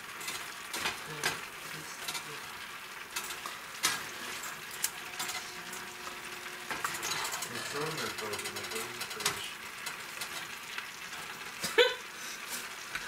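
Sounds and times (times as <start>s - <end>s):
food sizzling in a frying pan: 0.0s - 13.0s.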